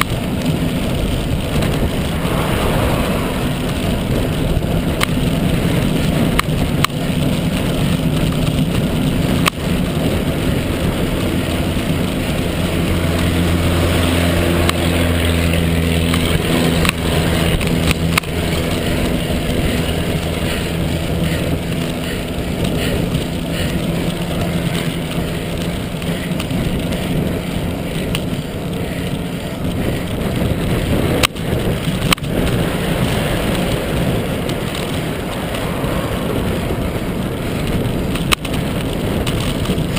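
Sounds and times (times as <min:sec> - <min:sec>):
passing motor vehicle engine: 0:00.0 - 0:39.9
road noise: 0:00.0 - 0:39.9
wind rushing over microphone: 0:00.0 - 0:39.9.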